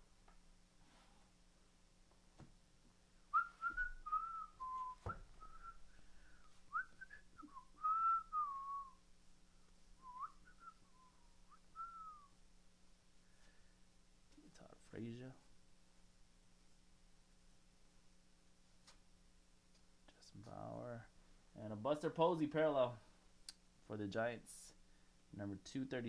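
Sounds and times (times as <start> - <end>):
person whistling a tune: 3.4 - 5.9, 6.7 - 9.0, 10.0 - 12.3.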